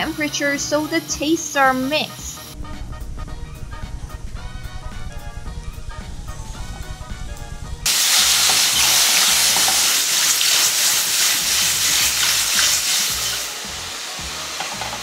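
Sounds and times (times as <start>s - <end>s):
mushrooms sizzling in frying pan: 7.9s - 15.0s.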